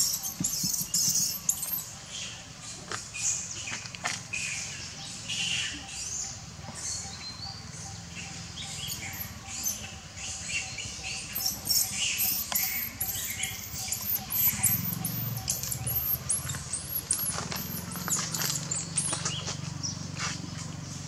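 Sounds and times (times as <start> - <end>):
infant monkey squealing: 0.0 - 1.8, 8.6 - 9.9, 11.3 - 19.1.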